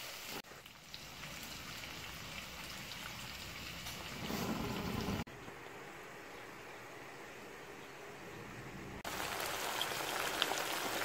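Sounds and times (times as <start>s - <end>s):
vegetables sizzling in oil: 9.1s - 11.0s.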